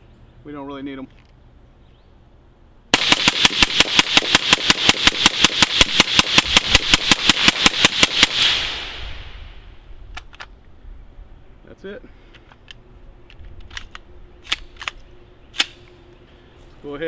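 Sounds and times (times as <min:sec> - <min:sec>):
suppressed rifle rapid fire: 0:02.9 - 0:09.4.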